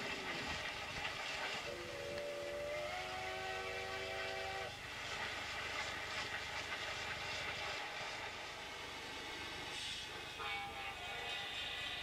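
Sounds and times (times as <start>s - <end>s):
running train hiss and rumble: 0.0s - 12.0s
train whistle chord: 1.7s - 4.8s, 10.3s - 12.0s.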